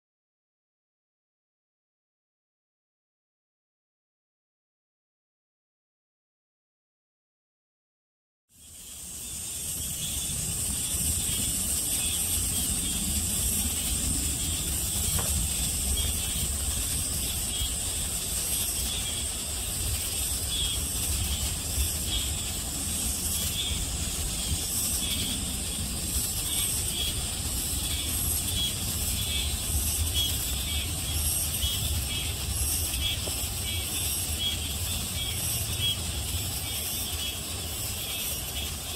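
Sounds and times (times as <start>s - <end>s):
insect drone: 8.5s - 38.9s.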